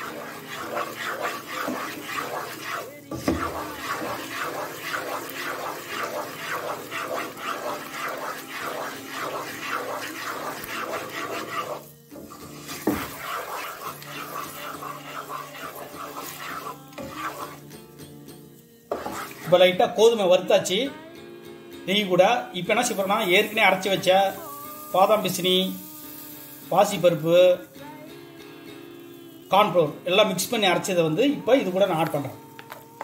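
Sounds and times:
wooden spatula scraping pan: 0.0 - 17.6, 18.9 - 19.8, 22.7 - 27.2
light sizzle: 0.0 - 20.8, 22.0 - 33.0.

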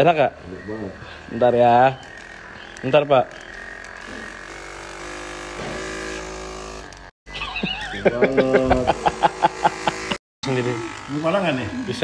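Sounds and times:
massage gun motor hum: 0.0 - 12.0
massage gun pounding: 3.5 - 7.0.

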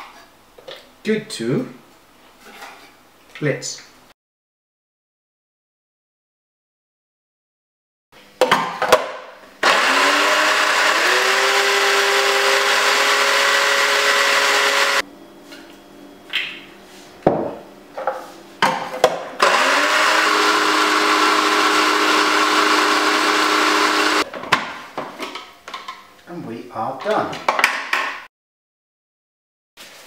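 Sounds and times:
food processor motor whine: 9.6 - 15.0, 19.4 - 24.3.

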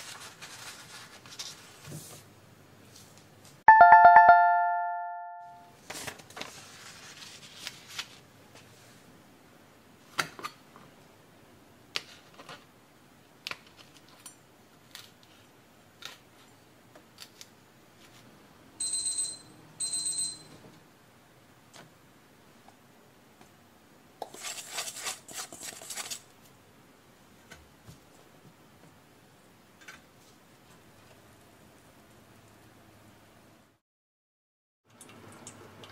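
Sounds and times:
kitchen timer beeps: 3.7 - 5.6.

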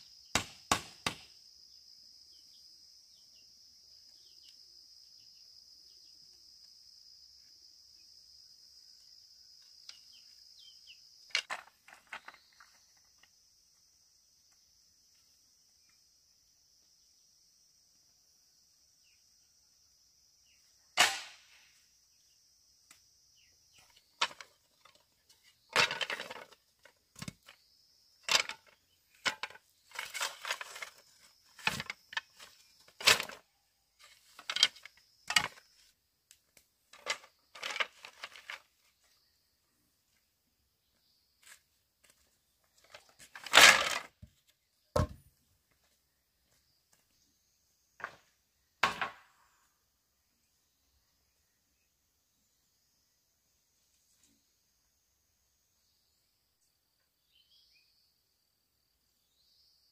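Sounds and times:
bamboo cracking and knocking: 11.3 - 13.3, 23.8 - 27.6, 28.2 - 33.4, 34.0 - 38.9, 42.8 - 45.3, 48.8 - 49.3.

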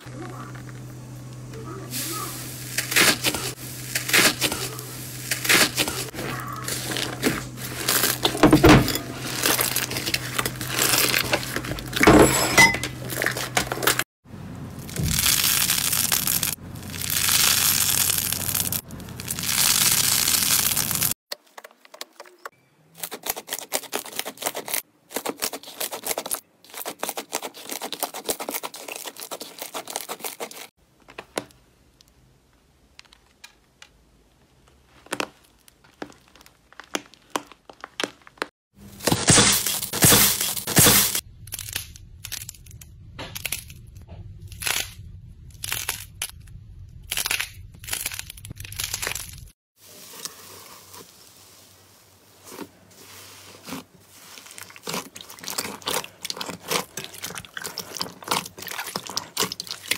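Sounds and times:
hands squishing slime: 52.5 - 59.9.

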